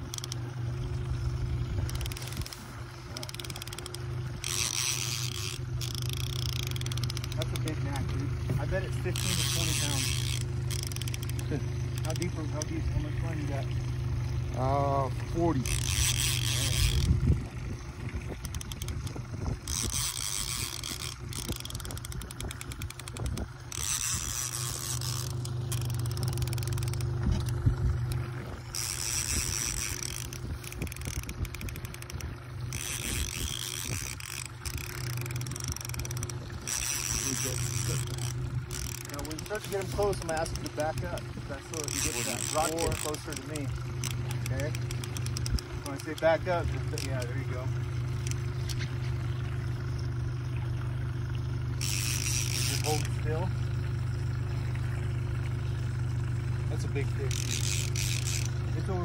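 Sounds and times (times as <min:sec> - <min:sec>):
fishing reel clicking: 0:00.0 - 0:13.8, 0:14.5 - 0:17.5, 0:18.3 - 0:49.4, 0:51.7 - 0:53.5, 0:56.8 - 0:59.0
outboard motor humming: 0:00.0 - 0:59.0.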